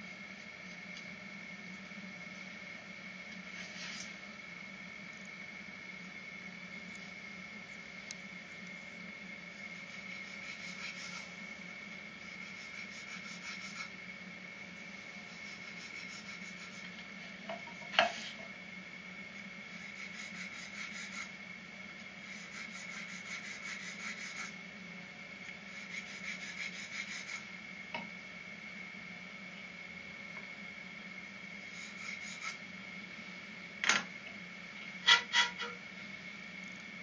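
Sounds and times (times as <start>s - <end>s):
faint steady hum: 0.0s - 37.0s
rod rasping inside bamboo bore: 9.8s - 11.4s, 12.2s - 14.0s, 15.3s - 17.0s, 19.8s - 21.4s, 22.3s - 24.6s, 25.8s - 27.5s, 31.6s - 32.6s, 35.0s - 35.8s.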